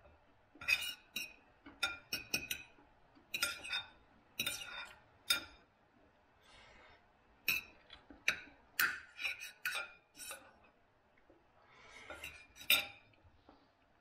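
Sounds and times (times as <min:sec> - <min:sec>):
cutlery clinking on plate: 0:00.6 - 0:05.6, 0:12.0 - 0:13.2.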